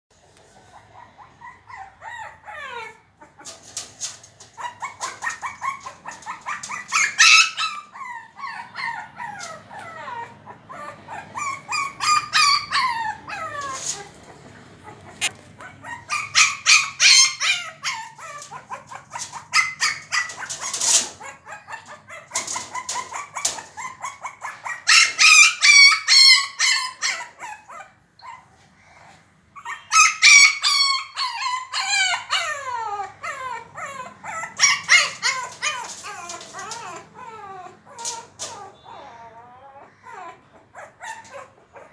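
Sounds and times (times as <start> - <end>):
puppy whining and yelping: 0.2 - 41.9
paws scratching at glass door: 3.3 - 8.2, 11.4 - 25.3, 33.3 - 38.8.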